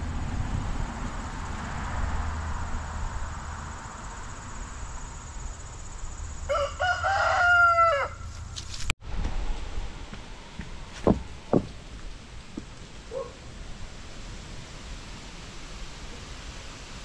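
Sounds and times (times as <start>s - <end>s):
rooster crowing: 6.5s - 8.3s.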